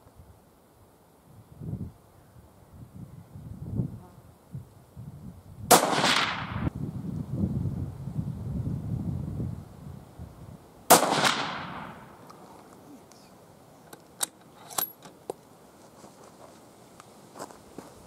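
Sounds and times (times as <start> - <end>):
low wind rumble: 1.3 - 12.3
rifle shot with echo: 5.7 - 6.7, 10.9 - 12.2.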